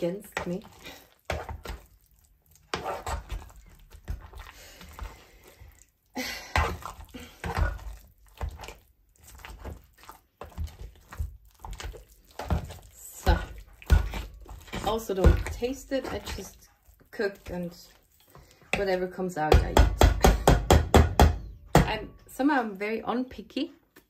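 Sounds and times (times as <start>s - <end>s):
spoon stirring mashed potatoes: 0.0s - 24.0s
spoon knocking against pan: 19.5s - 22.0s.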